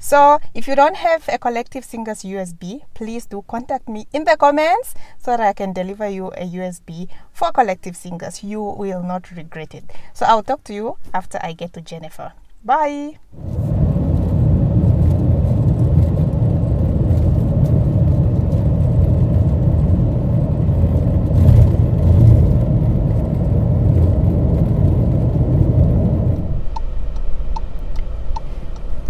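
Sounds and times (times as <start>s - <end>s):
car cabin road rumble: 13.3s - 29.0s.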